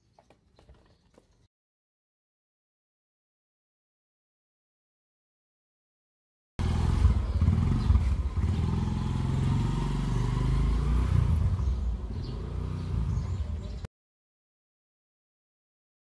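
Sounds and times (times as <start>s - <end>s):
small motorcycle engine rumble: 6.6s - 13.9s.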